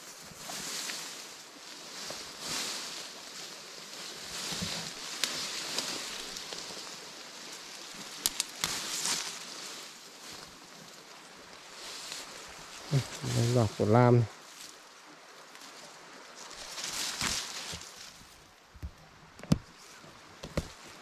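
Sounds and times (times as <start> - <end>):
rustling of leaves and stems: 0.0 - 21.0
stems snapping: 4.6 - 6.8, 8.0 - 9.4, 17.0 - 17.9, 20.4 - 20.8.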